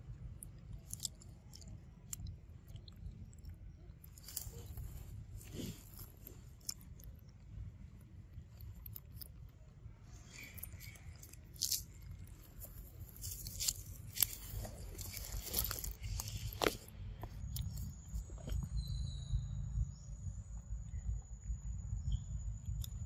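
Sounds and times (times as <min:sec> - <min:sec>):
low steady rumble: 0:00.0 - 0:23.0
wet smacks and clicks: 0:00.4 - 0:04.6.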